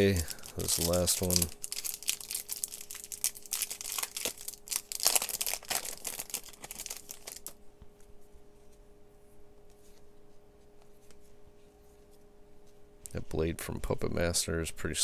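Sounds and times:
foil wrapper crinkling and tearing: 0:00.0 - 0:07.6
soft clicks of cards handled: 0:09.6 - 0:11.3.

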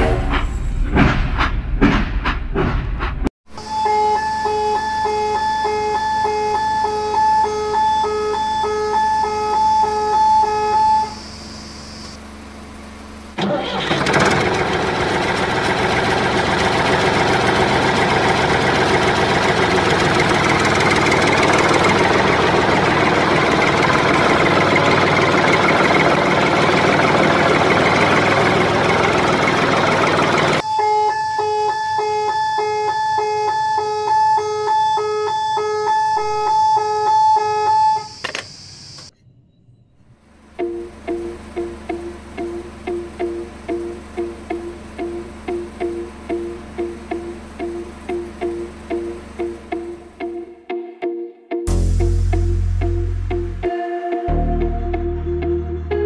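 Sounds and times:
tractor engine running: 0:03.6 - 0:39.1, 0:40.2 - 0:50.4
electronic warning beeps: 0:30.6 - 0:40.0.

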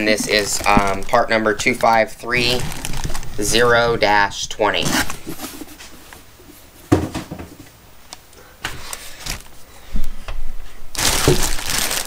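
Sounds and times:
plastic bag crinkling: 0:00.0 - 0:05.6, 0:08.8 - 0:09.6, 0:10.9 - 0:12.0.

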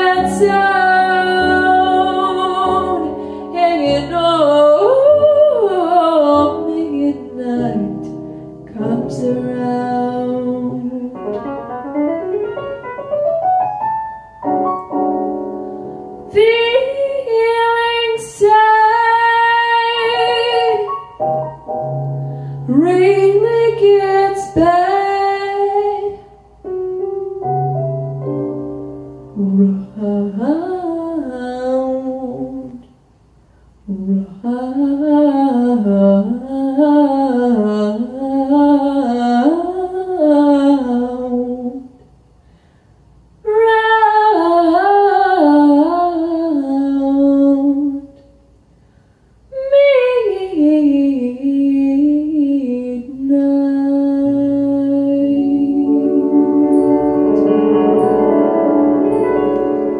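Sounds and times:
woman singing wordless jazz vocal: 0:00.0 - 0:11.6, 0:15.8 - 0:21.2, 0:22.4 - 0:26.5, 0:29.3 - 0:33.0, 0:33.8 - 0:42.0, 0:43.4 - 0:48.3, 0:49.5 - 0:59.9
sustained chords: 0:55.1 - 0:59.9.

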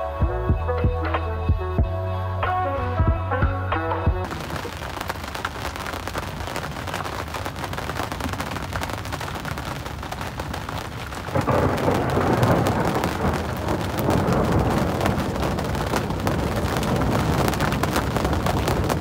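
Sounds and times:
rain drops hitting: 0:04.2 - 0:19.0
wind on microphone: 0:05.7 - 0:19.0.

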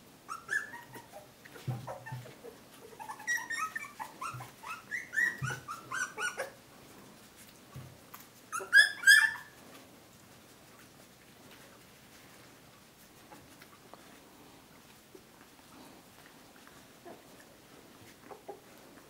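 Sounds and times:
puppies squeaking and whimpering: 0:00.3 - 0:06.6, 0:08.5 - 0:09.6
puppy cries: 0:00.3 - 0:06.6, 0:08.5 - 0:09.6.

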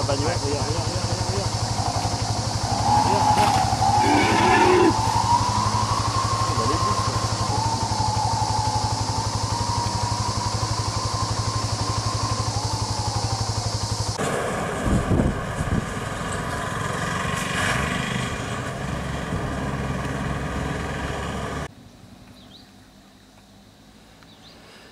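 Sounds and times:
high wavering whine: 0:00.0 - 0:16.0
vehicle engine idling: 0:00.0 - 0:24.7.

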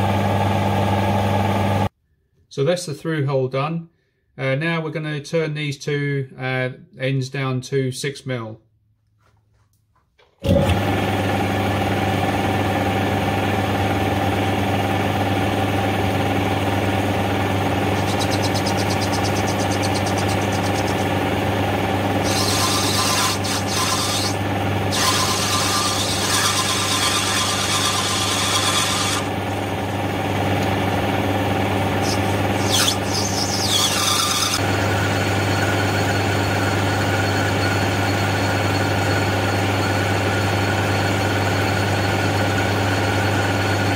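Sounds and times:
metal lathe humming: 0:10.5 - 0:43.9
high hissing of cutting tool: 0:32.0 - 0:34.6.

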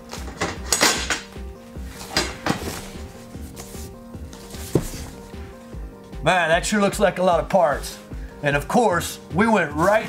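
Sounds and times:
packaging rustling and knocking: 0:00.0 - 0:05.4
background music with steady beat: 0:00.0 - 0:10.0.

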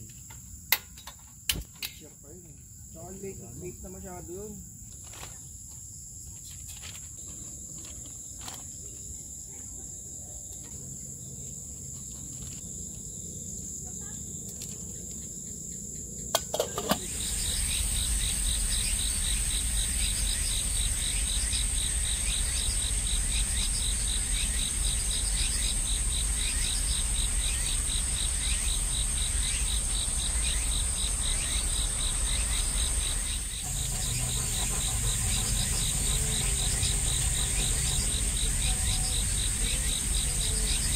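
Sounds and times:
insects trilling: 0:00.0 - 0:40.9
rhythmic pulsing chirp: 0:17.0 - 0:40.9.

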